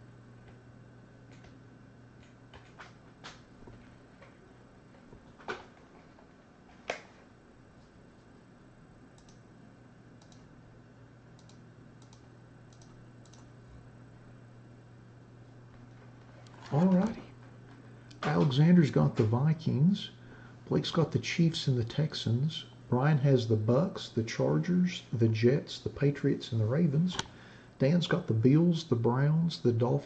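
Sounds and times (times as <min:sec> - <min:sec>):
low electrical hum: 0:00.0 - 0:30.0
keyboard and mouse clicks: 0:11.4 - 0:13.5.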